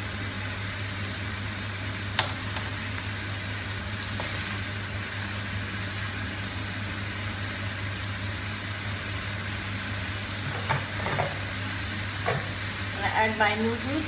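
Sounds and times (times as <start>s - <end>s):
sauce simmering in a frying pan: 0.0s - 14.0s
spatula knocking against pan: 12.2s - 12.6s.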